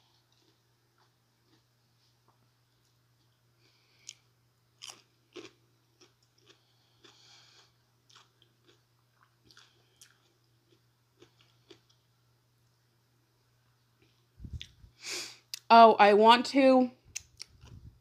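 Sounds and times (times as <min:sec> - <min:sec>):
person crunching cucumber: 0:00.1 - 0:01.7, 0:04.8 - 0:12.0.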